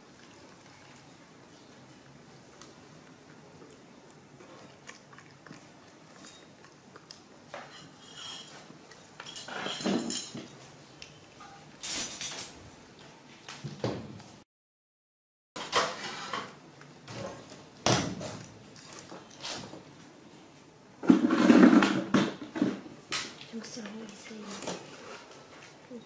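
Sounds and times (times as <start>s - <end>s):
clinks and scrapes on metal pot: 7.5s - 10.5s, 15.6s - 16.6s.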